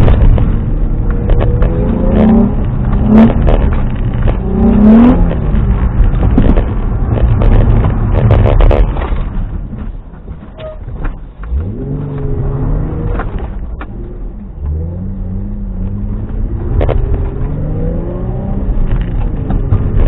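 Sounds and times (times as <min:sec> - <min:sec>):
car engine revving: 0:00.0 - 0:09.9, 0:11.4 - 0:20.0.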